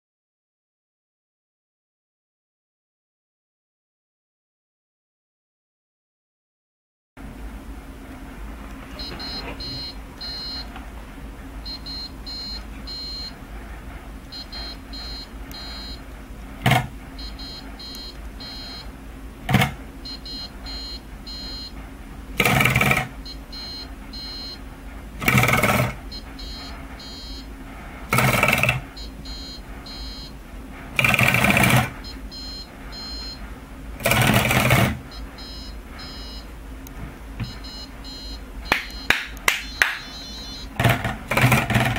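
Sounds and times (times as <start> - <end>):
high electronic beeps: 9.0 - 10.7, 11.7 - 13.4, 14.3 - 16.0, 17.2 - 18.9, 20.0 - 21.7, 23.3 - 24.6, 25.3 - 27.5, 28.2 - 30.4, 32.0 - 33.4, 35.1 - 36.5, 37.4 - 40.7.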